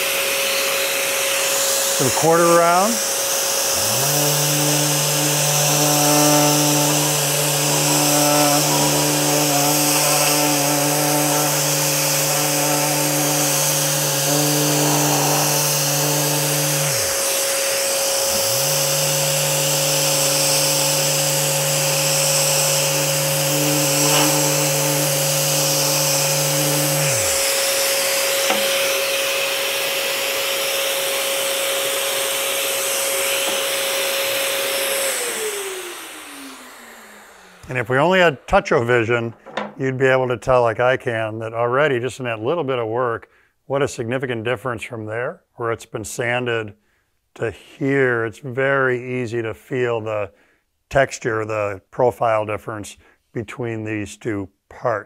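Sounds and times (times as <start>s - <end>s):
electric sander running: 0.0s - 38.6s
dust extraction vacuum: 0.0s - 39.7s.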